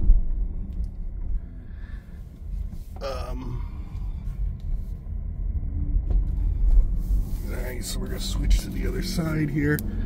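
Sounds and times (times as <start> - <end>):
car cabin road noise: 0.0 - 10.0
person sighing: 3.0 - 4.2.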